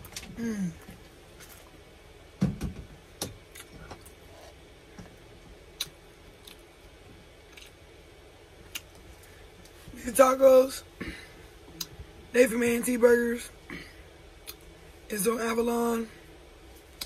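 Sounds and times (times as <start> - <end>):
person chewing with mouth smacks: 3.5 - 4.6, 5.7 - 6.7, 7.5 - 7.8, 8.6 - 9.8, 14.4 - 14.7.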